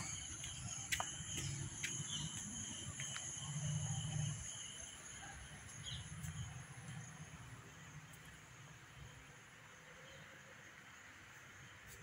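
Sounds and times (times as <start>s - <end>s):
footsteps on stone steps: 0.0s - 4.6s, 5.4s - 8.2s.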